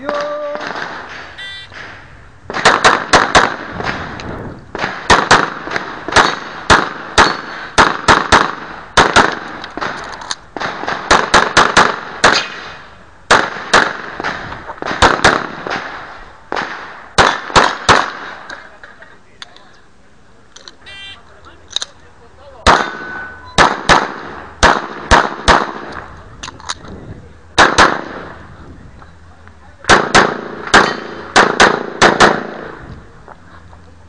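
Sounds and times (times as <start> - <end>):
handgun shots with echo: 22.7 - 25.9, 29.9 - 32.6.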